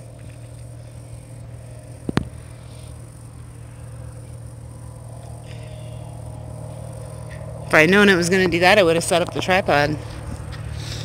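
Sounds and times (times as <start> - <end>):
low hum with higher tones: 0.0 - 11.0.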